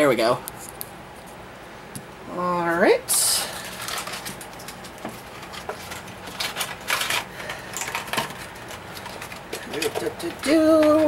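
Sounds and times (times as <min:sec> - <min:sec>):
plastic packaging rustling: 0:03.1 - 0:11.0.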